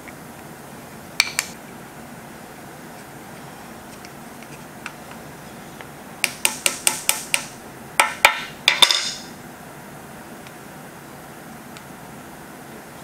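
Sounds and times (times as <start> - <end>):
hammer tapping rivets on steel: 6.2 - 9.3.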